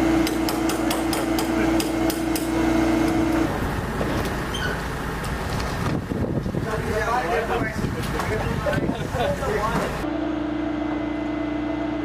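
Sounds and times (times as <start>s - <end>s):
equipment drone: 0.0s - 6.2s
sharp metal taps: 0.2s - 2.5s
rough clatter and rumble: 3.1s - 9.0s.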